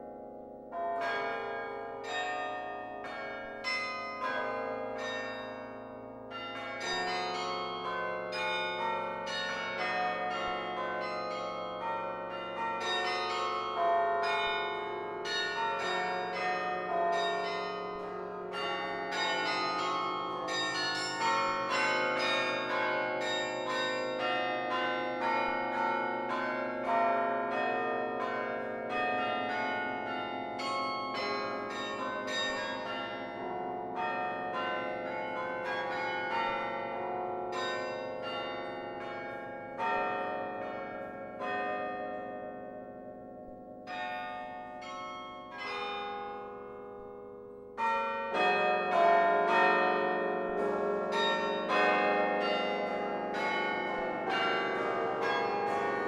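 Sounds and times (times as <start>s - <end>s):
carillon bells ringing: 47.8s - 56.0s.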